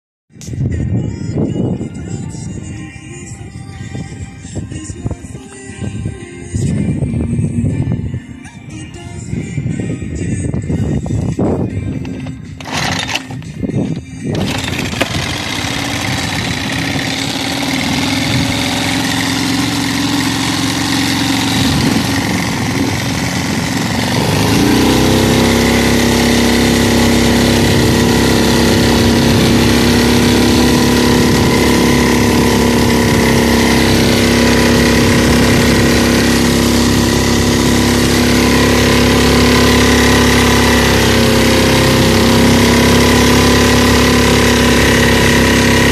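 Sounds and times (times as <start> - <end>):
outboard motor running: 11.9 - 45.9.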